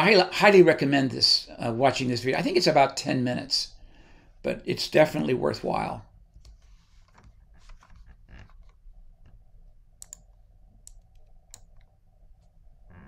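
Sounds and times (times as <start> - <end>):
low room hum: 0.0 - 13.0
computer mouse clicks: 10.0 - 12.5.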